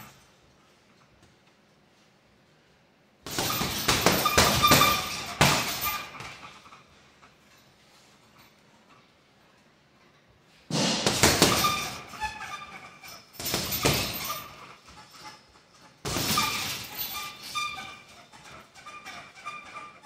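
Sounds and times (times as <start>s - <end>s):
punches on heavy bag: 10.7s - 12.0s.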